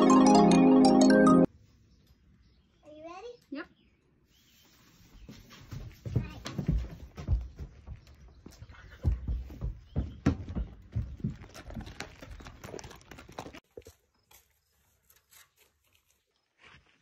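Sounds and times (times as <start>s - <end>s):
horse hooves thudding on ground: 5.1s - 17.0s.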